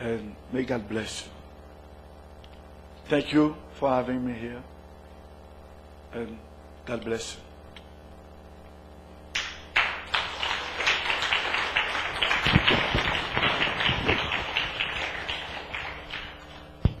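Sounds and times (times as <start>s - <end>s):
crowd clapping: 9.4s - 17.0s.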